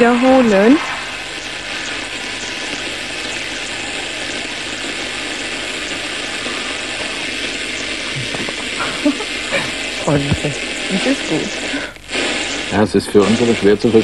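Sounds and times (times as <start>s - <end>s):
electronic static hiss: 0.0s - 14.0s.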